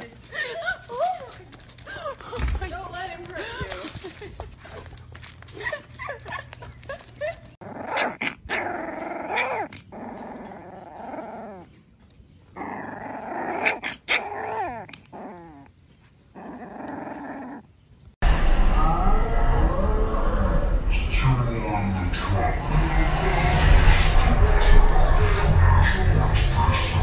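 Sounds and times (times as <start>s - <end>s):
puppy growling: 7.6s - 11.9s, 12.5s - 18.2s.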